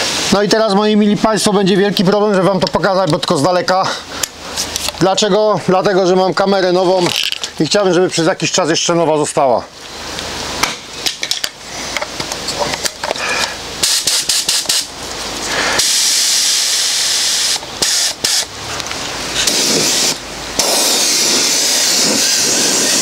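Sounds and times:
spray gun hissing: 0.0s - 0.5s, 13.2s - 14.9s, 15.5s - 18.6s, 19.2s - 23.0s.

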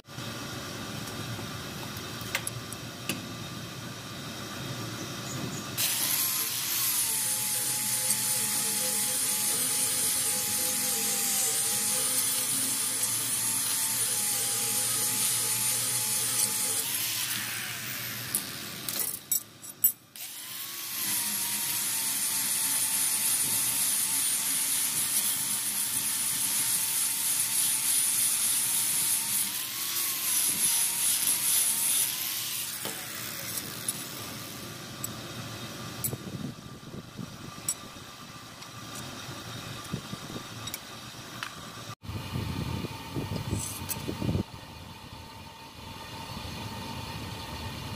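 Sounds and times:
electric grinder on steel: 5.8s - 19.2s, 20.2s - 35.1s.

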